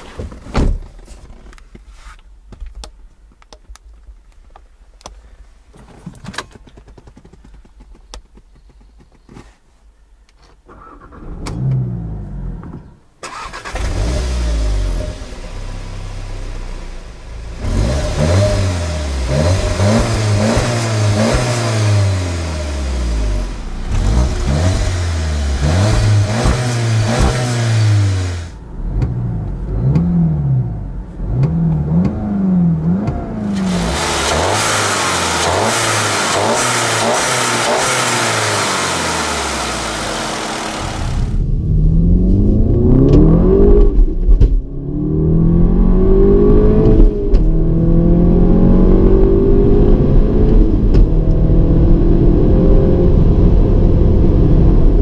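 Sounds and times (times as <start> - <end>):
car engine starting and revving: 10.7 - 55.0.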